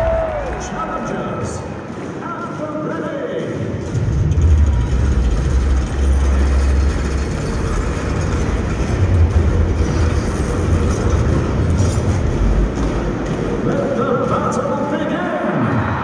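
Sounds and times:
arena crowd noise: 0.0s - 16.0s
deep rumble from sound system: 3.9s - 13.4s.

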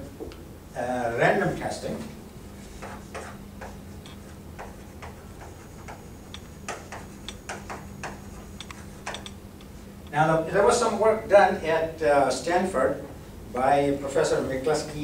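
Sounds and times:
chalk tapping and scratching: 2.6s - 9.4s.

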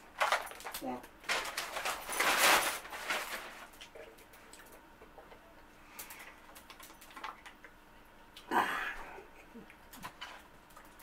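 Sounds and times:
plastic jug crinkling: 0.0s - 4.7s.

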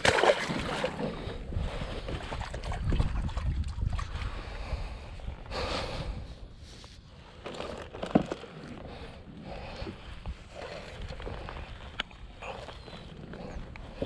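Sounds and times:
paddle splashing in water: 0.0s - 1.3s
wind rumbling on microphone: 0.0s - 7.4s, 8.8s - 14.0s.

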